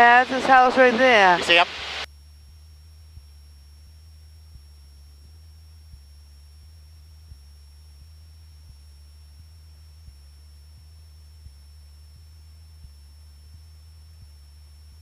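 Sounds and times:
propeller aircraft engine drone: 0.0s - 2.1s
faint high whine: 0.0s - 15.0s.

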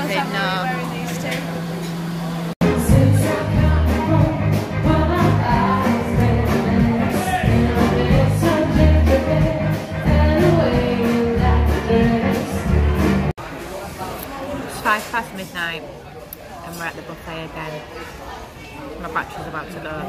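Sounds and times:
bass guitar: 2.6s - 13.3s
person singing: 2.6s - 13.3s.

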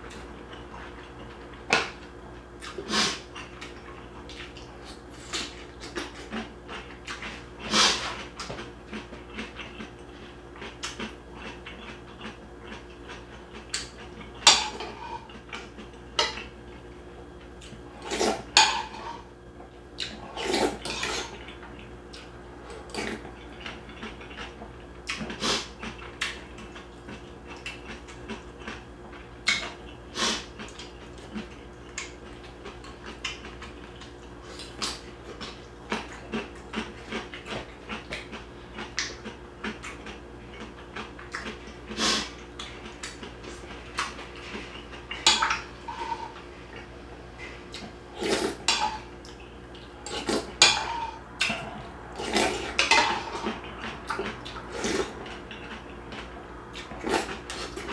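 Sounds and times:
person chewing: 2.6s - 16.5s, 20.0s - 57.9s
person slurping soup: 48.1s - 48.6s.

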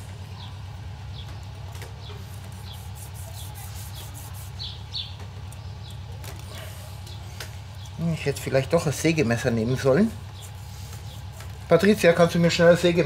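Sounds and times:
small birds chirping: 0.0s - 13.0s
steady low hum: 0.0s - 13.0s
knife sawing through crisp food: 2.6s - 4.6s.

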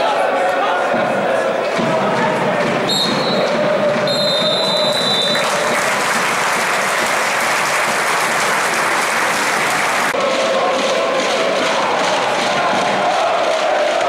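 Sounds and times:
fans chanting: 0.0s - 5.8s, 9.2s - 14.0s
whistle blowing: 2.9s - 5.5s
stadium crowd applauding: 2.9s - 14.0s.

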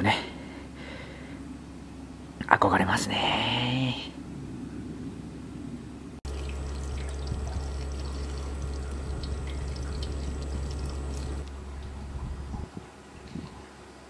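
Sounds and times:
tap water splashing on leaves: 6.3s - 11.4s.

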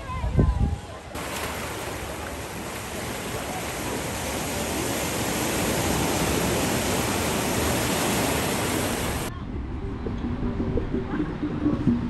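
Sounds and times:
ocean surf washing onto beach: 0.8s - 9.3s.

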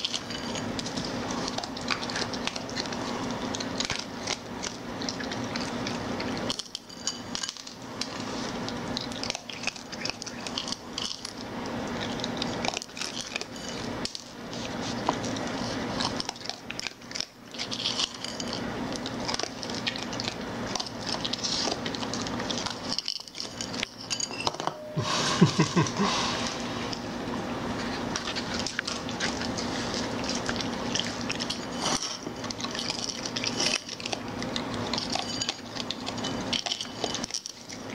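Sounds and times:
raccoon crunching dry kibble: 0.0s - 24.3s, 26.0s - 37.9s
steady low hum: 0.0s - 37.9s
ceramic bowl clinking: 22.9s - 25.1s.

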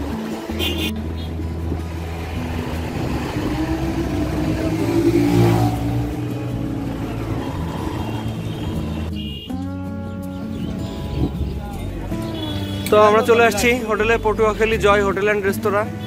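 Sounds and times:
motorcycle engine running: 0.0s - 9.5s
traffic noise: 0.0s - 9.8s, 10.4s - 16.0s.

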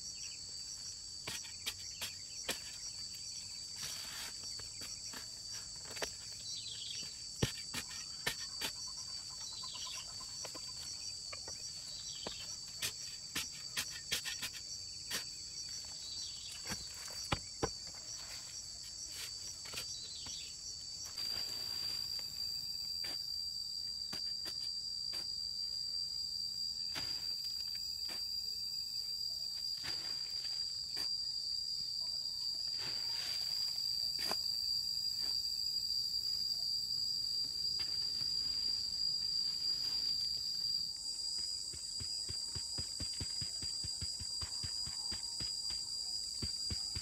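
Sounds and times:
insect chorus: 0.0s - 47.0s
shovel chopping and scraping soil: 1.2s - 9.8s, 11.6s - 20.4s, 26.9s - 28.3s, 41.4s - 47.0s.

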